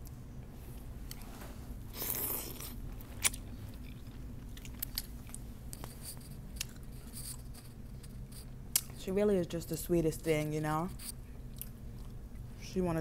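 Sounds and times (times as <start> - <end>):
person slurping noodles: 1.9 - 2.8
chewing with mouth clicks: 2.0 - 9.0, 11.4 - 12.5.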